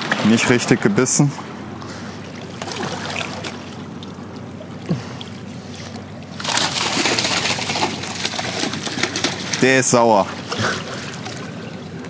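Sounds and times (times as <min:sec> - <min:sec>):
water lapping: 0:00.0 - 0:12.0
fish splashing at water surface: 0:02.0 - 0:04.2, 0:04.8 - 0:11.8.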